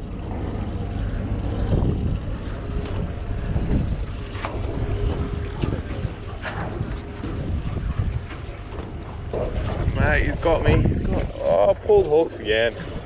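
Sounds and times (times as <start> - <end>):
water slapping against boat hull: 0.0 - 13.0
wind rumbling on microphone: 0.0 - 13.0.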